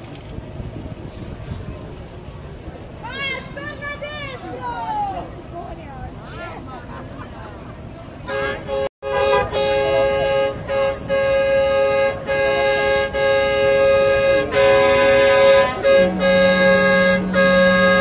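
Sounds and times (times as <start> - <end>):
tractor horns honking: 8.1 - 18.0.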